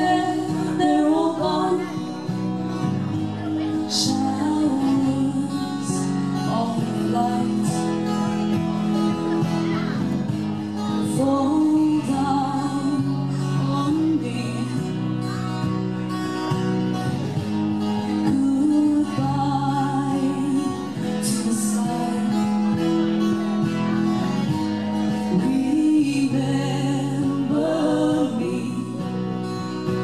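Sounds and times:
woman singing: 0.0 - 2.3, 3.6 - 8.0, 11.0 - 15.1, 18.0 - 22.7, 25.1 - 29.6
strummed acoustic guitar: 0.0 - 30.0.

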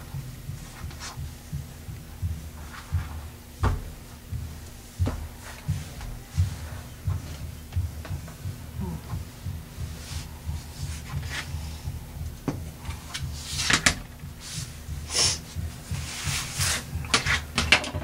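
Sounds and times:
low uneven pulsing: 0.0 - 18.0
cloth sliding on cutting mat: 16.0 - 17.4.

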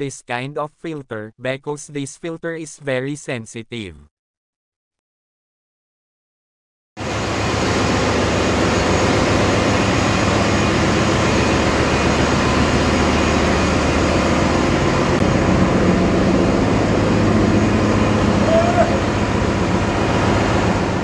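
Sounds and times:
engine room machinery drone: 7.0 - 21.0
low hum: 7.0 - 21.0.

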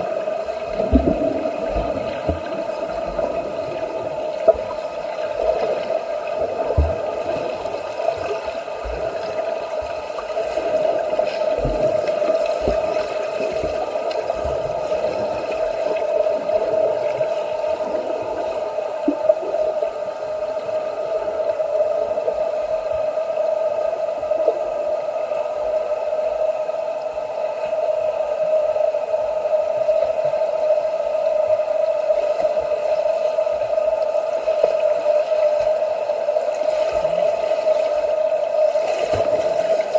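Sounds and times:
water splashing: 0.0 - 20.4, 36.5 - 39.9
steady hum: 0.0 - 39.9
soft low thumps: 0.7 - 4.7.

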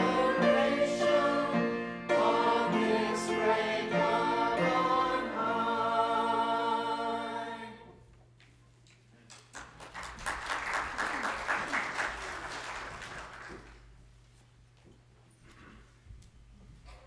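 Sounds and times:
choir singing: 0.0 - 8.0
congregation applauding: 9.3 - 13.9.

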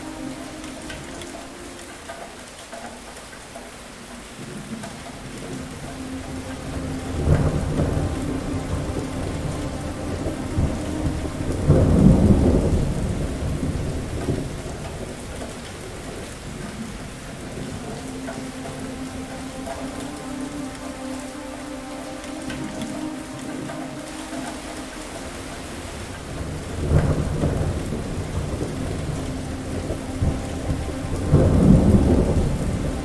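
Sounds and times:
steady rain: 0.0 - 33.0
thunder rolling: 5.4 - 16.7, 25.9 - 33.0.

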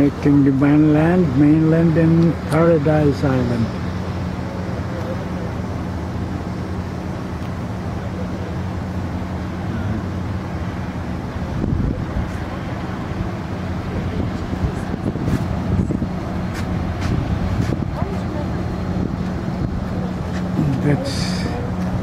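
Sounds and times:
steady low hum: 0.0 - 22.0
wind buffeting microphone: 10.1 - 22.0.

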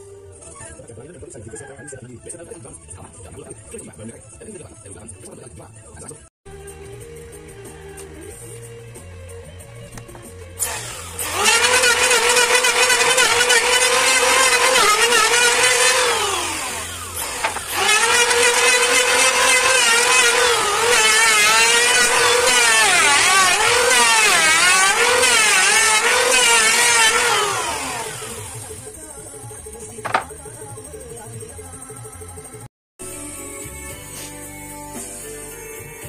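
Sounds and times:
electric planer whining: 10.0 - 28.9, 29.9 - 30.4.

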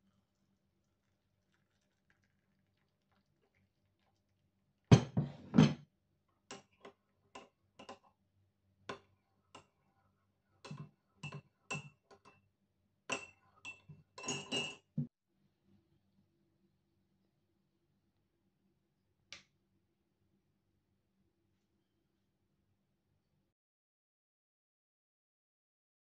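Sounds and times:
spoon clinking in ceramic mug: 13.1 - 14.9.

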